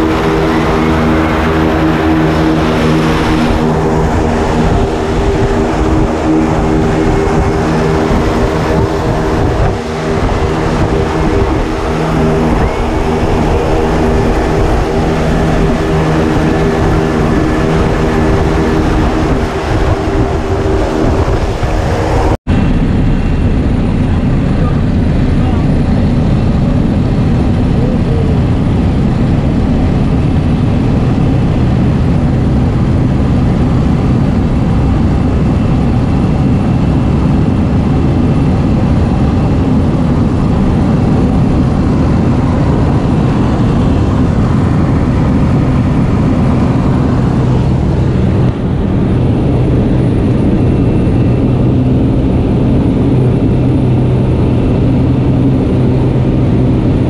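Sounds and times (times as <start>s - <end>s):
propeller plane engine: 0.0s - 57.0s
rushing air: 0.0s - 57.0s.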